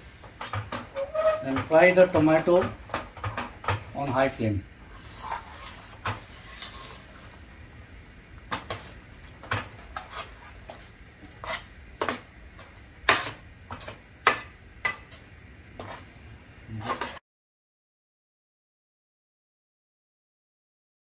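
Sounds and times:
ladle scraping metal pot: 0:00.4 - 0:03.5, 0:04.9 - 0:07.3, 0:09.8 - 0:12.2, 0:16.8 - 0:17.2.

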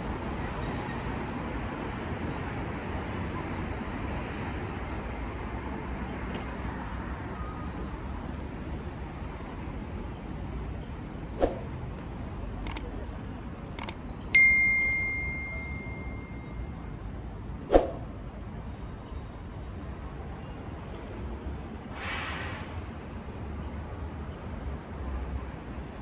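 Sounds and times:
sharp clicks: 0:12.6 - 0:13.0, 0:13.7 - 0:14.0
metallic ding: 0:14.4 - 0:16.6
short hiss: 0:21.9 - 0:22.8.

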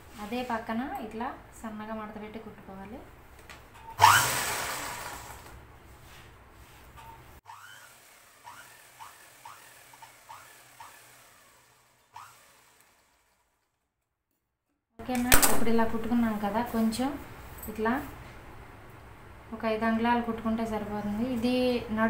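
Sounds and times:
sewing machine stitching: 0:04.0 - 0:05.6, 0:07.5 - 0:13.6
single click: 0:15.1 - 0:15.8.

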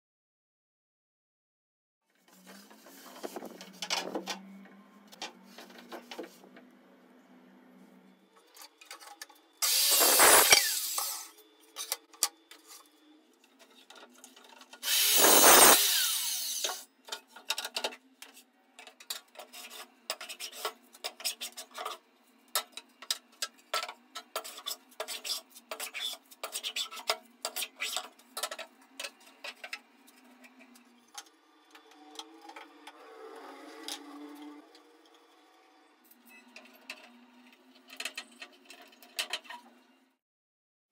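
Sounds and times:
power saw cutting wood: 0:09.6 - 0:11.4, 0:14.8 - 0:16.8.

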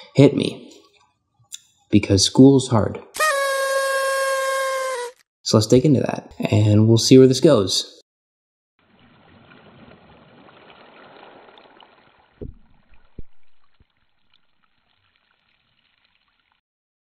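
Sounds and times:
low thumps: 0:12.4 - 0:13.8.

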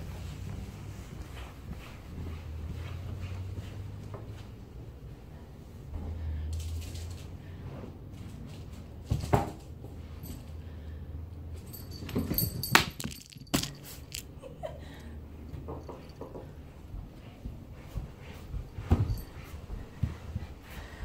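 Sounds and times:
paws and toy thumping on tiles: 0:11.7 - 0:14.3, 0:15.5 - 0:20.6.

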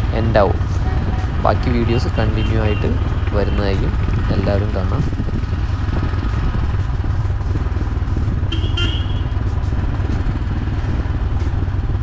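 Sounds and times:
motorcycle engine rumble: 0:00.0 - 0:12.0
wind on microphone: 0:00.0 - 0:12.0
vehicle horn beep: 0:00.8 - 0:03.0, 0:08.5 - 0:09.4.

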